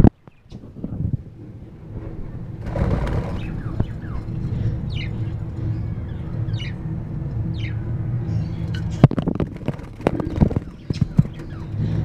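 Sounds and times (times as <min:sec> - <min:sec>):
low hum: 0:00.0 - 0:12.0
budgerigars chirping: 0:02.8 - 0:06.8, 0:07.5 - 0:12.0.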